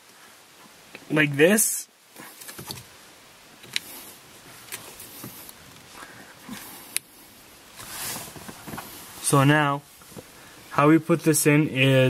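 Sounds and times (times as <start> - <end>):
soft handling rustles: 3.6 - 10.7.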